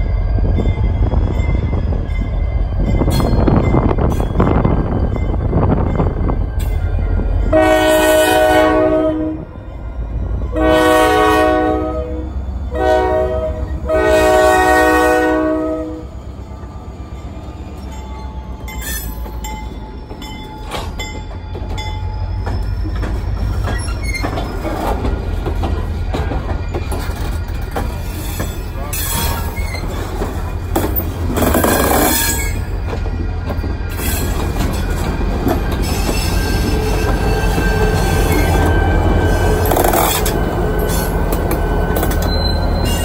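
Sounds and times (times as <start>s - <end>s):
locomotive air horn blasts: 7.4s - 9.5s, 10.5s - 16.1s
freight cars rolling: 18.1s - 43.0s
wheel squeal: 18.7s - 19.4s, 22.0s - 25.0s, 28.0s - 30.2s, 31.4s - 32.7s, 42.0s - 43.0s.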